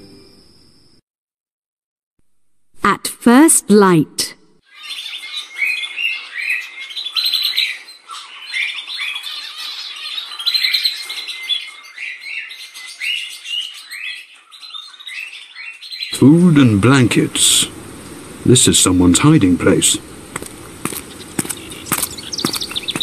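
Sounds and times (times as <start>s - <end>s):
birds singing and chirping: 4.7s - 23.0s.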